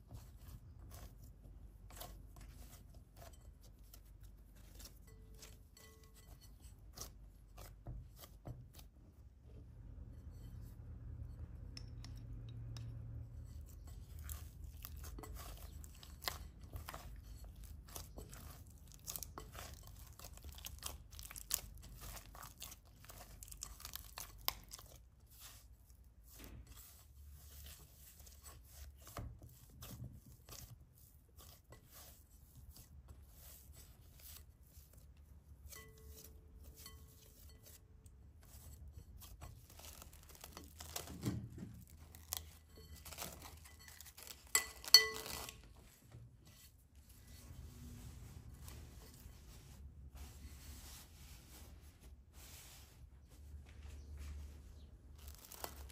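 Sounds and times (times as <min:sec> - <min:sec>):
low steady hum: 0:00.0 - 0:25.1
hands kneading bread dough: 0:00.0 - 0:55.9.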